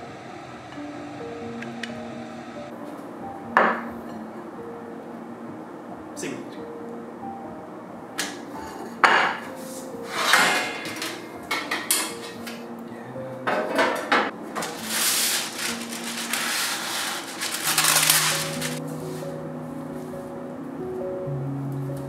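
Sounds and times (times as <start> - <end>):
metal trays clattering on table: 10.1 - 12.6, 13.5 - 18.8
baking paper rustling: 14.6 - 19.2.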